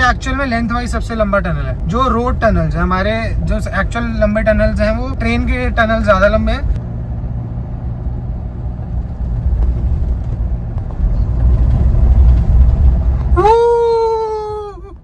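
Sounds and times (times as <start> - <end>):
car engine and tyres rumble: 0.0 - 15.0
person giving long high call: 13.3 - 15.0.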